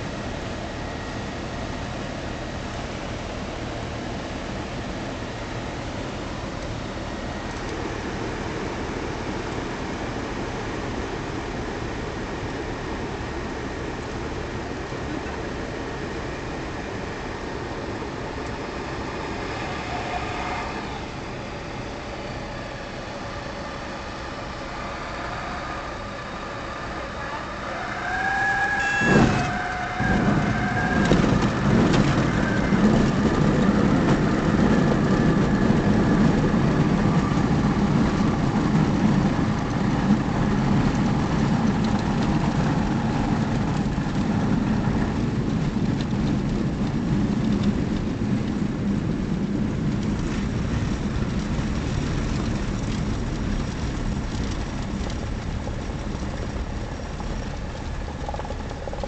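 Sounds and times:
small plane engine and propeller: 0.0s - 59.0s
wheels rumbling on gravel: 0.0s - 59.0s
steady high tone: 19.3s - 29.6s.

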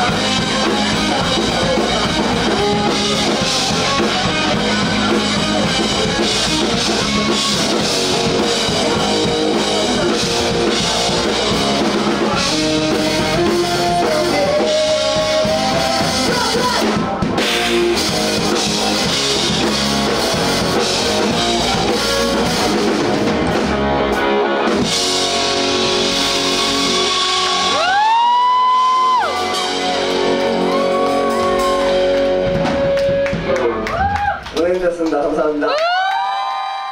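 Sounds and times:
rock band playing live: 0.0s - 34.5s.

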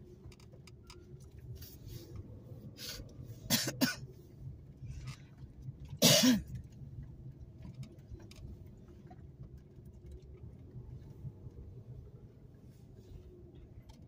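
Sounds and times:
car rumbling from inside cabin: 0.0s - 14.0s
person coughing: 3.5s - 4.0s, 6.0s - 6.5s.

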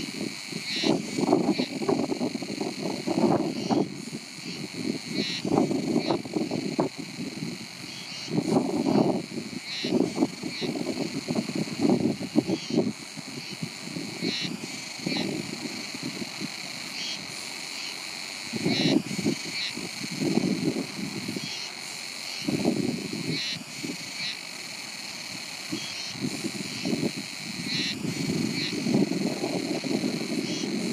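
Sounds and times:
wind buffeting microphone: 0.0s - 17.4s, 18.5s - 21.6s, 22.4s - 24.2s, 25.0s - 30.9s
insects chirping: 0.0s - 30.9s.

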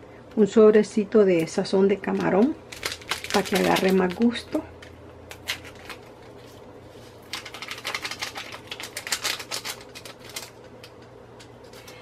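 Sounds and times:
sachet crackling and clicking: 2.0s - 6.6s, 7.2s - 12.0s.

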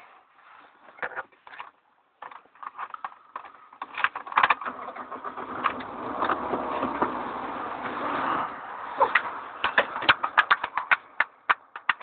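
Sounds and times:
car engine starting and running: 3.8s - 12.0s.

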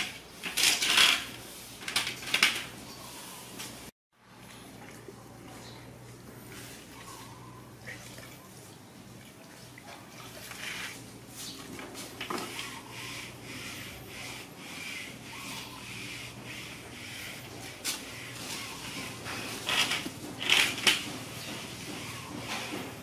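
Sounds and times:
rustling and scraping: 0.0s - 3.9s, 10.0s - 23.0s.

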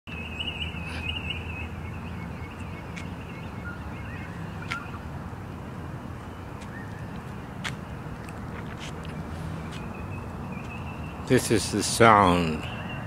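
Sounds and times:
birds chattering song: 0.1s - 13.0s
sharp single bird calls: 4.2s - 5.0s.

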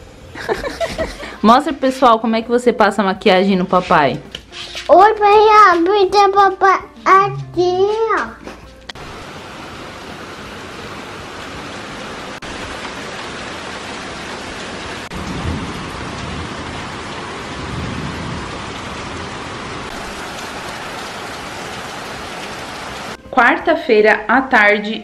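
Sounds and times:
heavy rain pouring: 0.0s - 1.5s, 9.0s - 23.2s.

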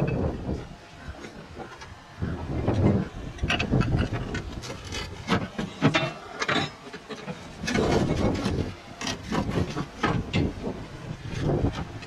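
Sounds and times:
clay roof tiles scraping and knocking: 2.6s - 12.0s.

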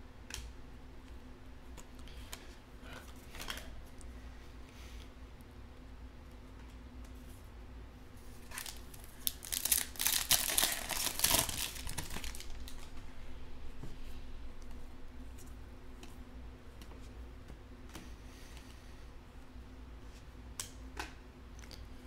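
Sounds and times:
foil wrapper tearing and crinkling: 8.4s - 12.9s.

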